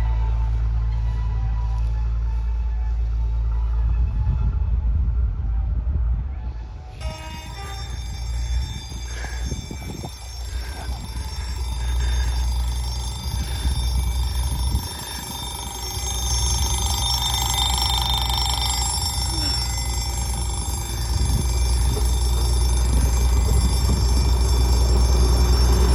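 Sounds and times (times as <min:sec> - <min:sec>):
low rumble: 0:00.0 - 0:25.9
level crossing electronic alarm: 0:07.0 - 0:25.9.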